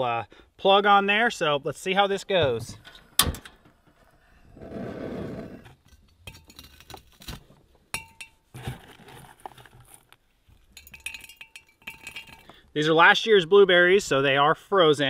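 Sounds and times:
berries clinking into glass jug: 0:10.7 - 0:12.6.

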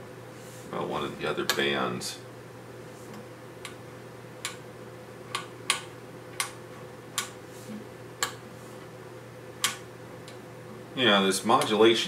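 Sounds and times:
steady low hum: 0:00.0 - 0:12.0
rotary switch clicking: 0:04.4 - 0:04.6, 0:05.3 - 0:07.4, 0:09.6 - 0:10.4.

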